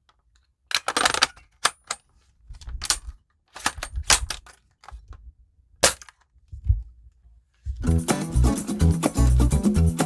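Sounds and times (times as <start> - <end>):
toy rifle clicks and rattles: 0.3 - 5.0.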